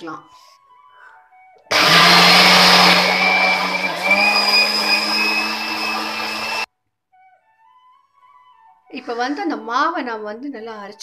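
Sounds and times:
mixer grinder motor running: 1.7 - 6.7.

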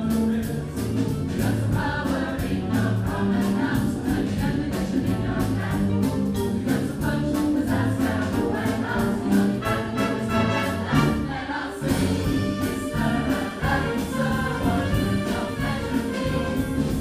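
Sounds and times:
mixed choir singing: 0.0 - 17.0
wind band playing: 9.6 - 17.0.

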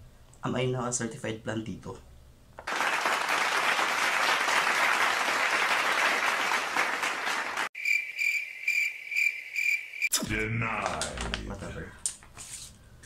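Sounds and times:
crowd clapping: 2.6 - 7.7
crickets chirping: 7.8 - 10.1.

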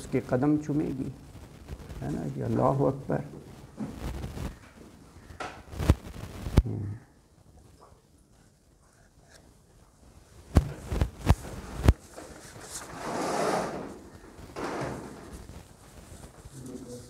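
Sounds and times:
paper rustling: 10.5 - 17.0.

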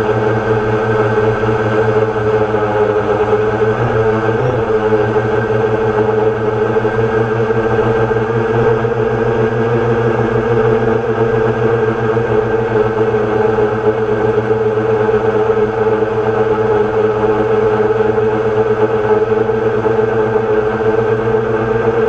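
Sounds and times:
drone propellers whirring: 0.0 - 18.0.

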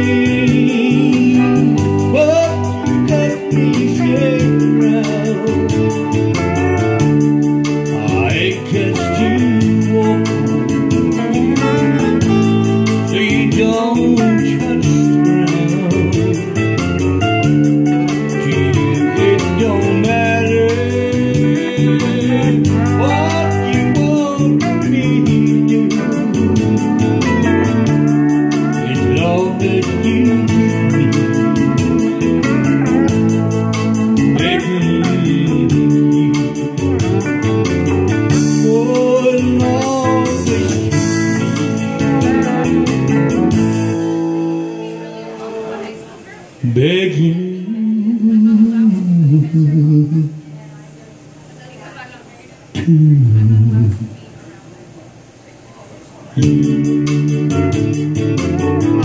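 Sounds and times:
electronic keyboard: 0.0 - 46.1
steady drum beat: 0.0 - 46.1, 56.4 - 59.0
pedal steel guitar gliding notes: 0.0 - 46.4
electric guitar: 0.0 - 50.7, 56.4 - 59.0.

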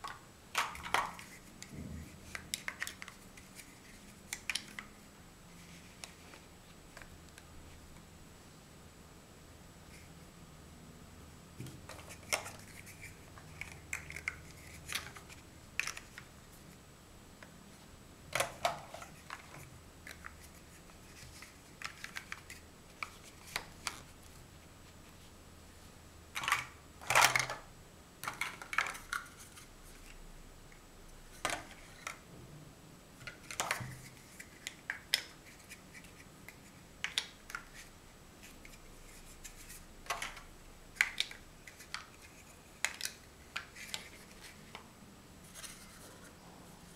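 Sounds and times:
plastic blocks clicking and clacking: 0.0 - 4.9, 11.9 - 16.3, 18.4 - 24.1, 26.4 - 30.1, 33.2 - 37.9, 38.6 - 44.8.

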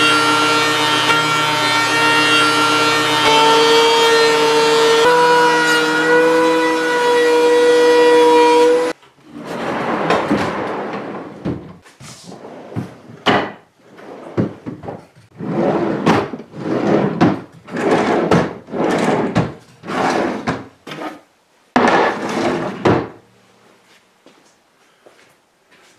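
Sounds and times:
wooden drawers sliding: 9.2 - 21.2, 21.8 - 23.2.

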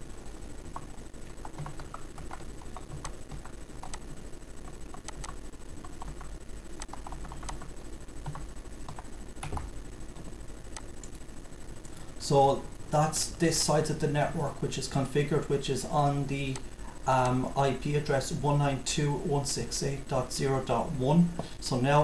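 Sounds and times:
typing on computer keyboard: 0.7 - 4.0, 4.9 - 9.7.

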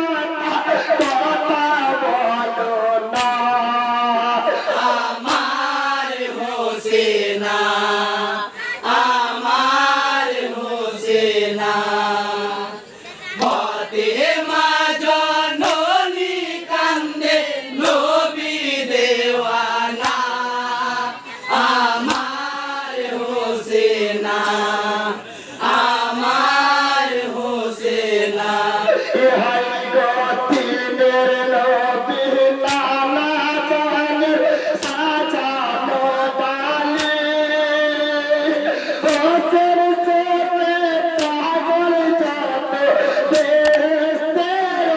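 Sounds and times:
man chanting into a microphone: 0.0 - 6.0, 28.5 - 44.9.

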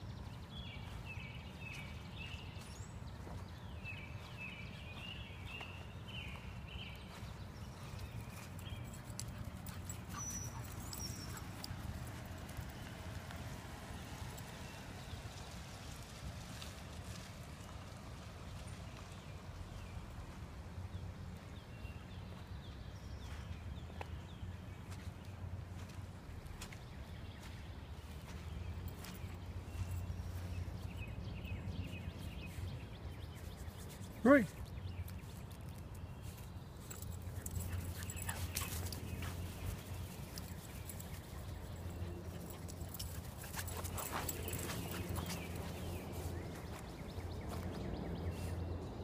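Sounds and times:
small bird chirping: 7.1 - 11.7
rustling on grass: 32.2 - 48.6.

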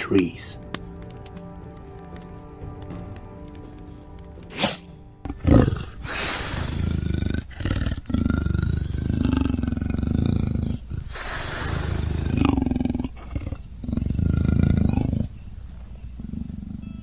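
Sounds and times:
arrow swishing from a bow: 4.5 - 4.9
big cat roaring: 5.2 - 15.4, 16.1 - 17.0.

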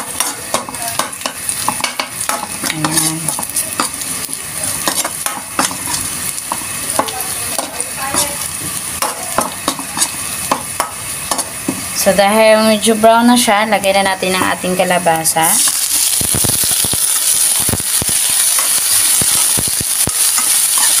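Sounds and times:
metal spatula scraping a wok: 0.0 - 11.9, 18.2 - 21.0
onions sizzling in hot oil: 0.0 - 21.0.

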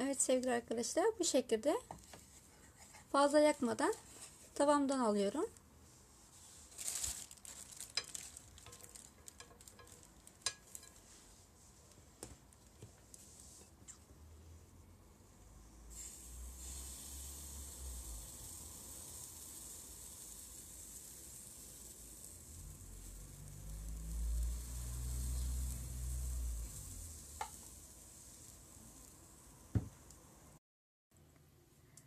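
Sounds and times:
batter sizzling in a frying pan: 6.6 - 11.4, 15.9 - 30.4.

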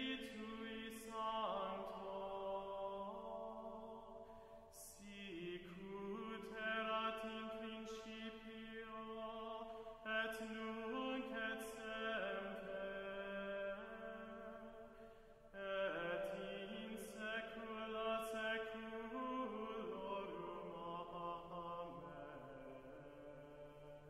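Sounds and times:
person singing slow chant: 0.0 - 24.0
singer breathing: 4.2 - 4.7, 9.6 - 10.0, 14.9 - 15.5.

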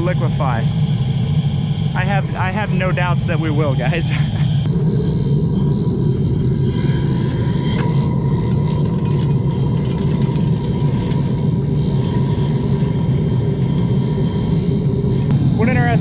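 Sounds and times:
faint steady whine: 0.0 - 16.0
roar of oil burner flame: 4.0 - 16.0.

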